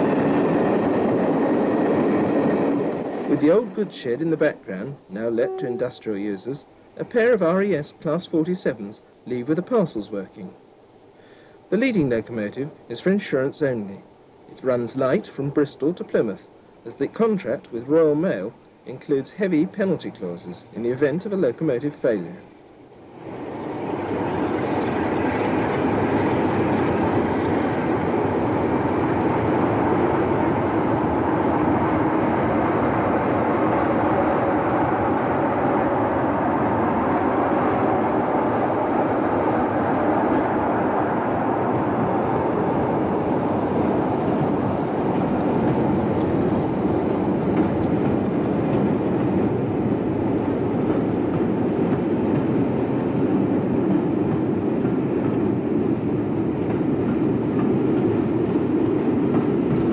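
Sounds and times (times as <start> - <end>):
diesel locomotive engines working: 0.0 - 59.9
faint high whine: 1.6 - 50.8.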